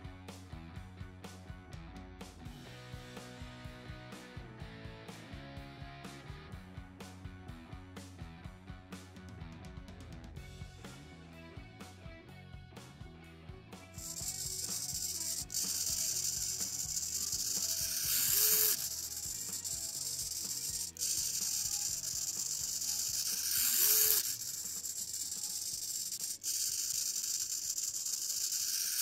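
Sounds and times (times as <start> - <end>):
servo motor whirring: 14.0 - 29.0.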